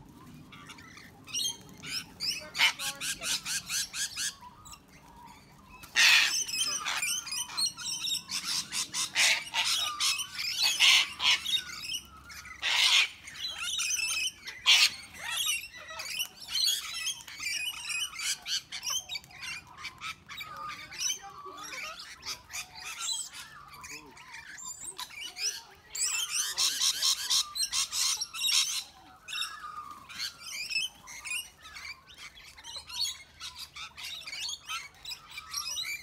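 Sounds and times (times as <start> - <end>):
parrots squawking: 0.5 - 36.0.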